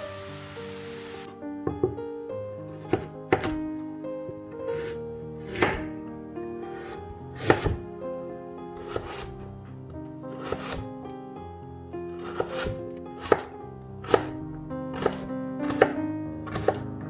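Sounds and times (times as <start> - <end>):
background music: 0.0 - 17.0
knife slicing carrot on board: 2.8 - 3.6, 4.7 - 5.9, 6.8 - 7.8, 8.8 - 9.4, 10.3 - 10.9, 12.2 - 17.0.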